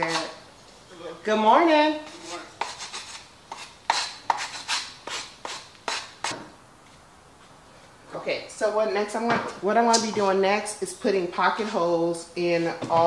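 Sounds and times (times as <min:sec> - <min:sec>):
sandpaper rubbing on wood: 0:02.0 - 0:06.4.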